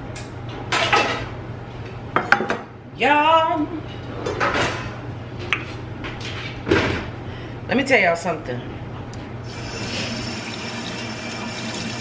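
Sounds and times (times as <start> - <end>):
dishes and utensils clattering: 4.2 - 5.0.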